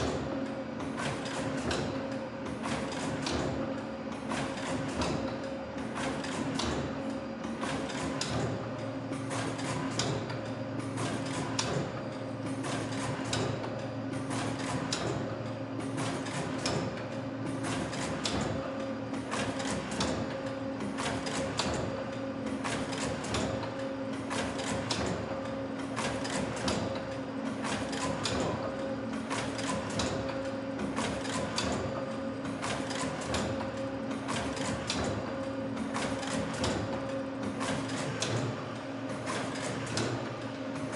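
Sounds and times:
loom mechanical clacks: 0.0 - 8.6, 9.2 - 40.9.

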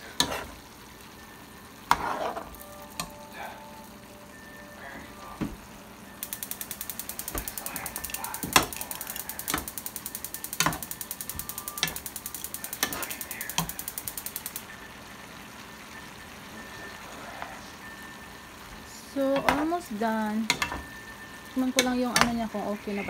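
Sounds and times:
spatula scraping a frying pan: 0.0 - 0.6, 1.9 - 2.6
gas stove igniter clicking: 6.2 - 14.7, 21.8 - 22.4.

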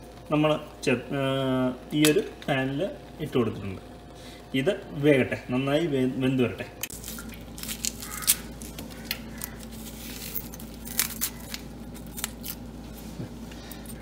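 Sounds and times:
low steady hum: 0.0 - 14.0
knife peeling vegetable skin: 6.9 - 12.7.

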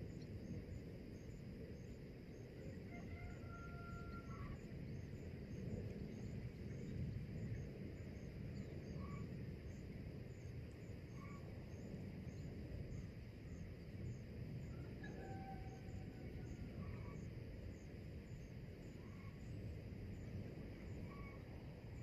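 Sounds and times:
steady low rumble: 16.7 - 22.0.

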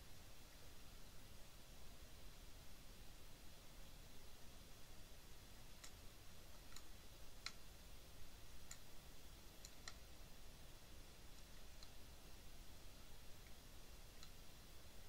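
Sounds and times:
computer mouse clicks: 5.7 - 7.6, 8.6 - 8.9, 9.6 - 10.1, 11.3 - 12.0.

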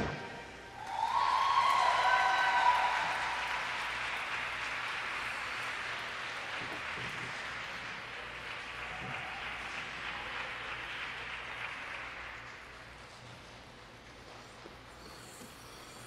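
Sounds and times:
audience applauding: 0.8 - 13.5.

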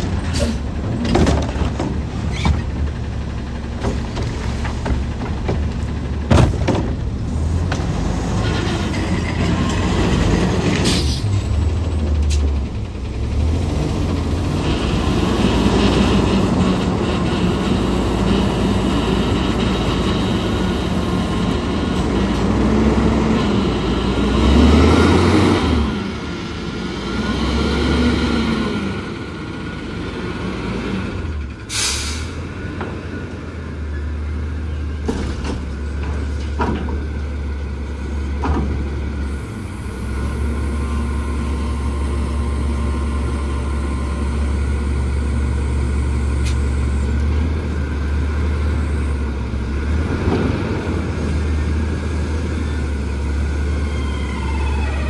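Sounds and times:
garbage truck engine revving: 0.0 - 33.6, 34.2 - 55.0
short air hiss: 31.7 - 32.4.

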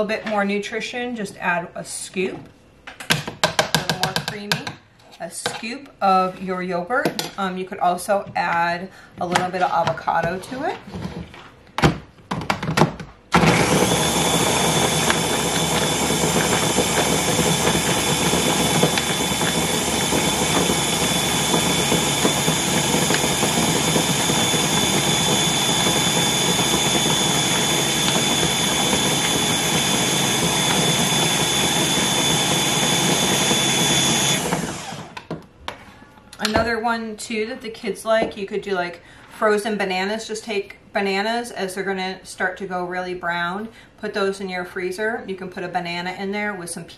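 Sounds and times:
blender motor whining: 13.4 - 35.3.

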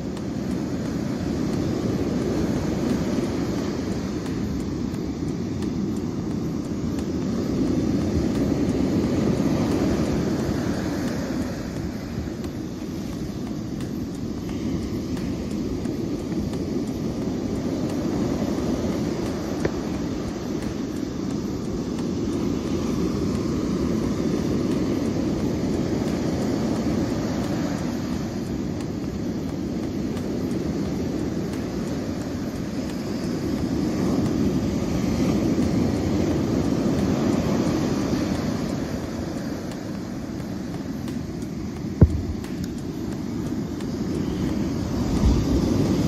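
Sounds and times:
ocean surf breaking: 0.0 - 46.0.

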